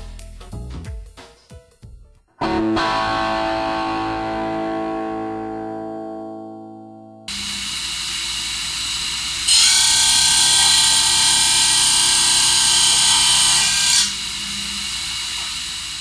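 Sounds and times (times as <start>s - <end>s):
grinding wheel cutting steel: 7.3s - 16.0s.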